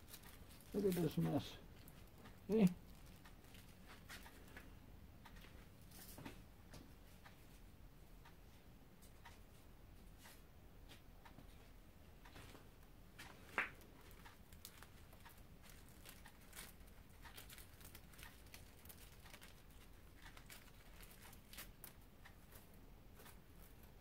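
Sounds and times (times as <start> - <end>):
paper and wire crinkling: 0.0 - 4.6, 14.0 - 23.9.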